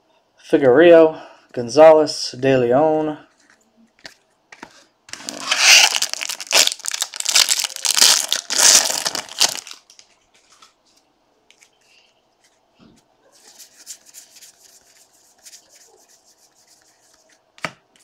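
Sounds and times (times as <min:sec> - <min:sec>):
foil wrapper tearing and crinkling: 0:05.1 - 0:10.1.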